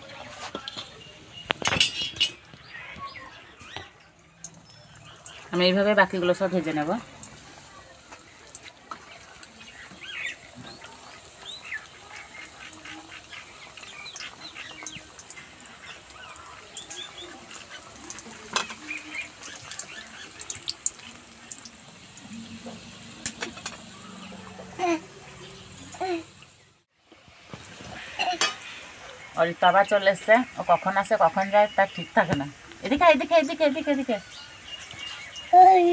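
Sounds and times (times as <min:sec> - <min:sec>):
oil sizzling and bubbling: 0:00.0 - 0:35.9.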